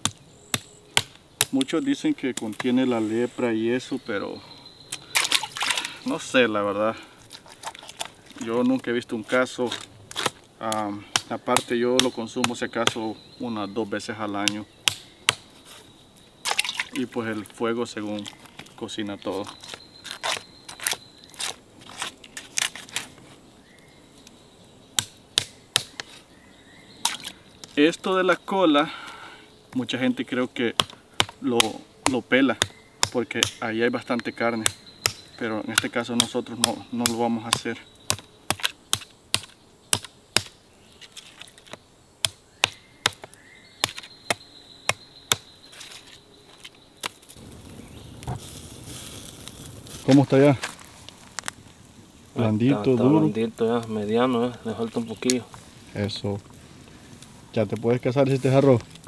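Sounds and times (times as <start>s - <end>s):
steady hiss: 0.0s - 19.8s, 45.6s - 59.0s
knife chopping on wood: 14.4s - 15.4s, 35.8s - 40.5s, 42.2s - 45.4s.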